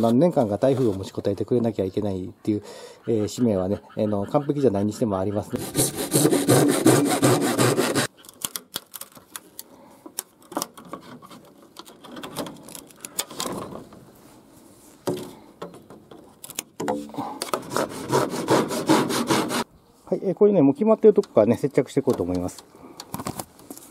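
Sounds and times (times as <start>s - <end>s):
hand saw cutting: 5.5s - 8.1s, 17.4s - 19.7s.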